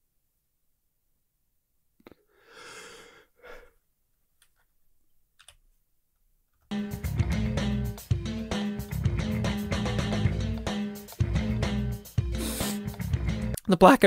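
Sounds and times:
man sighing: 0:02.0 - 0:03.8, 0:12.3 - 0:12.9
guitar music: 0:06.7 - 0:13.6.

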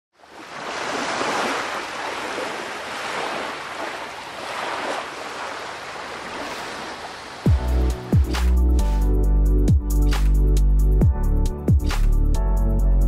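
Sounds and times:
rushing water: 0:00.1 - 0:09.1.

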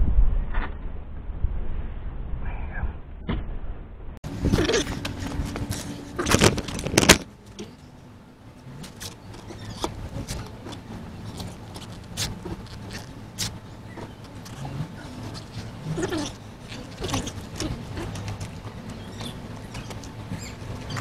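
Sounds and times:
rustling and clattering of trim: 0:04.4 - 0:07.9, 0:08.6 - 0:21.0.

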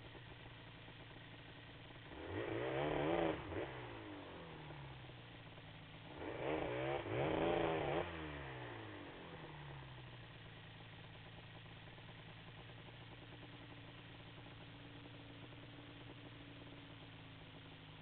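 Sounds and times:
engine idling: 0:00.0 - 0:07.2, 0:08.0 - 0:18.0
quad engine revving: 0:02.0 - 0:04.9, 0:06.1 - 0:09.6.

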